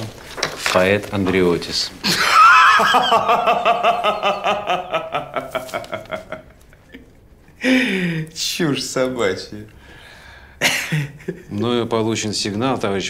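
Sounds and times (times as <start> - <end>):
man laughing out loud: 2.0 - 7.0.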